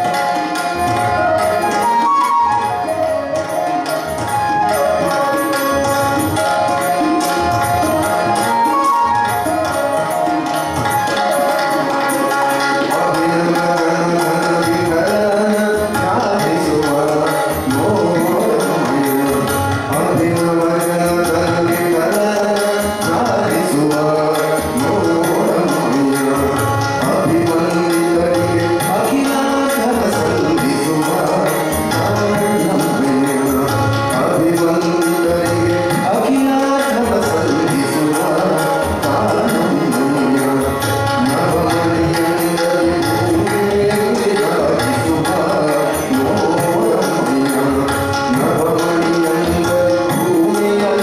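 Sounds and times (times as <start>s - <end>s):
harmonium: 0.0s - 51.0s
tabla: 0.0s - 51.0s
man singing devotional song: 11.9s - 51.0s.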